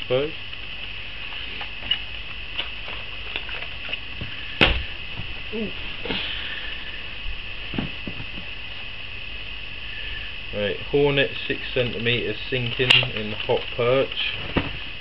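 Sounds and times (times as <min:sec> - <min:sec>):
steady hiss: 0:00.0 - 0:15.0
plastic packs clicking and rustling: 0:12.6 - 0:14.8.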